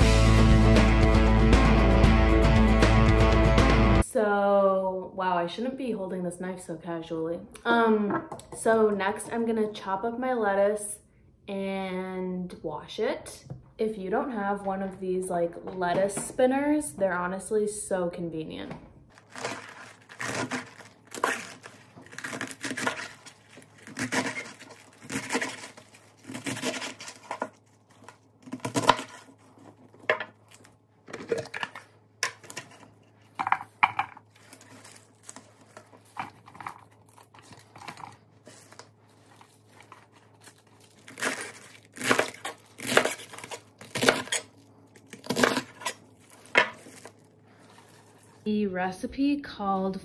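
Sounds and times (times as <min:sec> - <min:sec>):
lettuce leaves torn by hand: 0:19.1 - 0:29.3, 0:37.0 - 0:47.2
knife chopping lettuce: 0:19.2 - 0:29.4, 0:39.8 - 0:44.5, 0:45.1 - 0:47.1.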